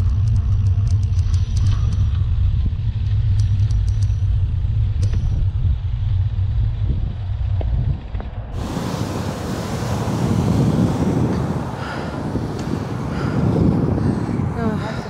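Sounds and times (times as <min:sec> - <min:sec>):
faint ticks: 0:00.0 - 0:02.3
wind and road noise: 0:00.0 - 0:15.0
hissy wind noise: 0:08.4 - 0:15.0.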